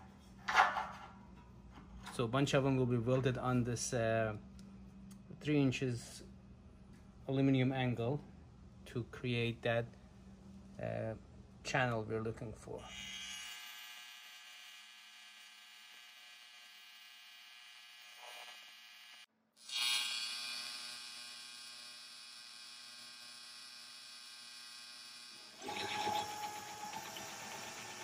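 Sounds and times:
welding arc buzzing: 12.9 - 28.0.

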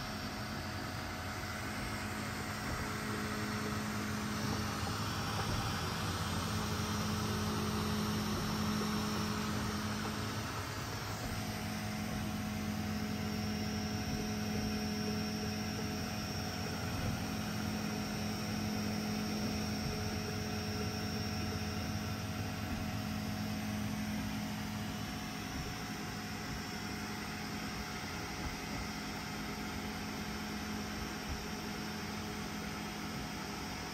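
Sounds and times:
hum: 0.0 - 33.2
cooling fans whirring: 0.0 - 33.9.

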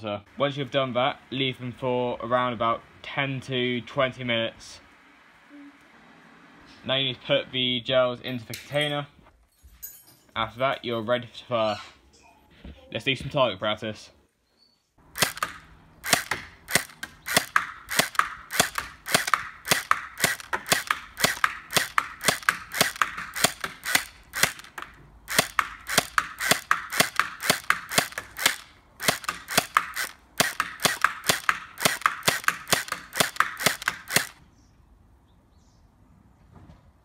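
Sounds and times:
gel blaster pistol cracks: 15.1 - 34.4.

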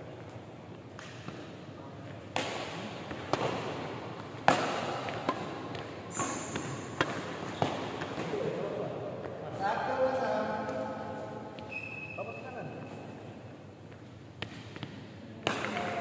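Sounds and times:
rackets striking shuttlecock: 2.3 - 8.5, 14.3 - 16.0.

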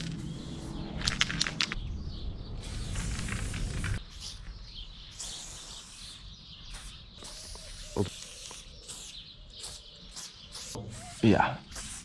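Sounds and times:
spray paint hissing: 0.0 - 1.2, 2.6 - 12.0
spray can ball rattling: 5.2 - 10.8, 11.7 - 12.0.

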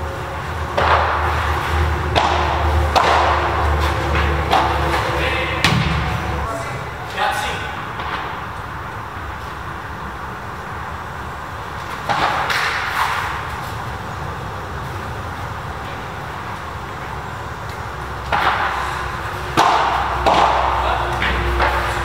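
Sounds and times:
padel racket striking ball: 0.7 - 6.3, 19.5 - 22.0.

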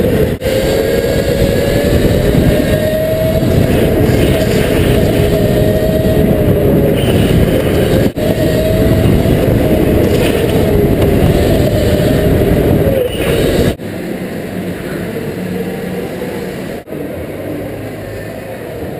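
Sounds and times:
electric go-kart motor whine: 0.0 - 18.9.

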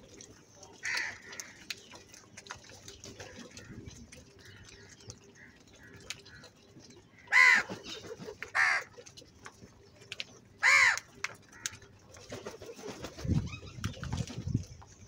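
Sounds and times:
crows cawing: 0.8 - 1.6, 7.2 - 7.7, 8.5 - 8.9, 10.6 - 11.8
beaks pecking grain clicks: 0.8 - 3.0, 9.4 - 11.9.

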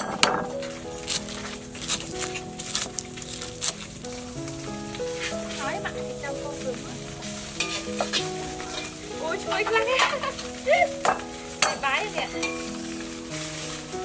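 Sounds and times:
food sizzling: 0.0 - 14.0
metal ladle scraping a wok: 7.5 - 9.1, 9.7 - 13.1.

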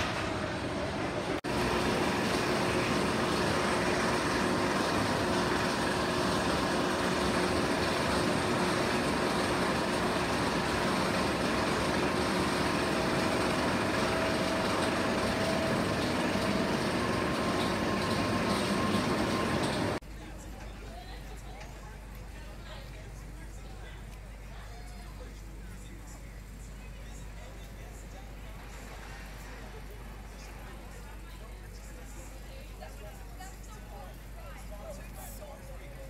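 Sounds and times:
roller coaster chain lift rattling: 1.6 - 21.8.

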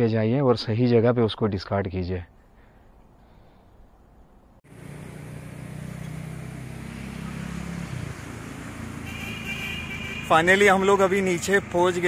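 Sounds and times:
traffic noise: 2.4 - 12.0
vehicle engine hum: 4.6 - 12.0.

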